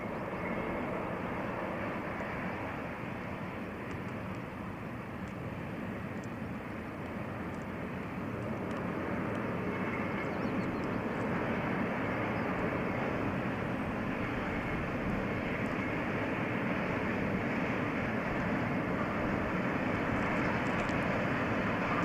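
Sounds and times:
freight train rumbling past: 11.2s - 22.0s.

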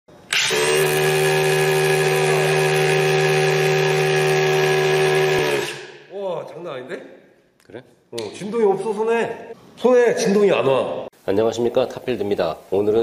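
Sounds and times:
rotary hammer drilling into concrete: 0.3s - 5.8s.

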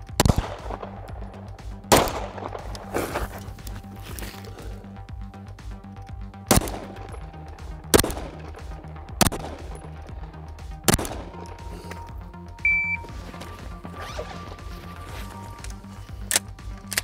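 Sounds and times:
pistol shots: 1.9s - 3.2s, 6.5s - 7.2s, 9.2s - 9.8s
short high electronic beep: 12.6s - 13.1s.

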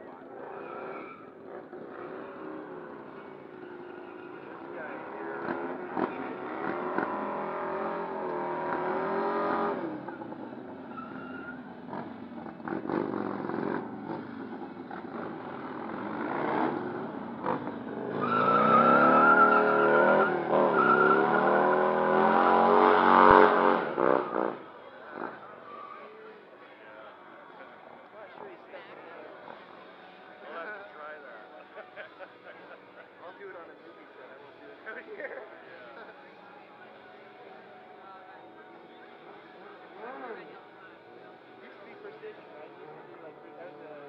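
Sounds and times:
motorcycle engine revving hard: 5.4s - 10.0s, 15.0s - 25.4s.

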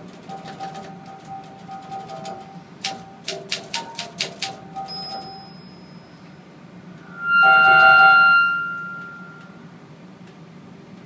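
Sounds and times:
typewriter keys clacking: 0.1s - 5.4s
organ notes: 7.0s - 9.6s.

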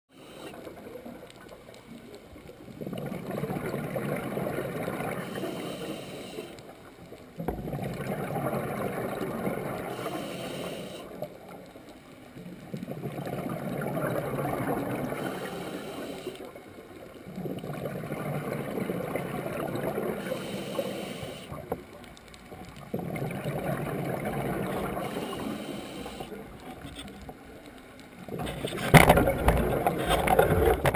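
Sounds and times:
exhaled bubbles rumbling underwater: 0.2s - 30.9s
diver breathing through regulator: 5.1s - 6.6s, 9.8s - 11.3s, 15.1s - 16.6s, 20.1s - 21.6s, 24.8s - 26.5s.

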